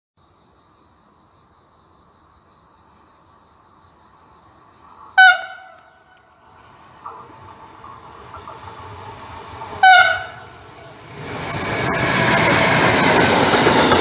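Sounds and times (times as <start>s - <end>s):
insects buzzing: 0.2s - 14.0s
approaching train rumble: 3.0s - 14.0s
train horn blast: 5.2s - 6.2s, 9.8s - 11.0s.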